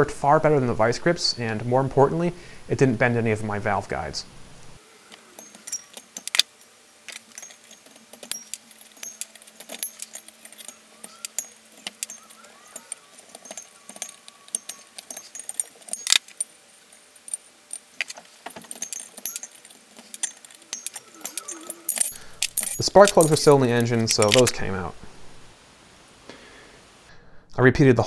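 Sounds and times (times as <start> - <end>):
steel tools clinking on metal: 5.1 - 24.6.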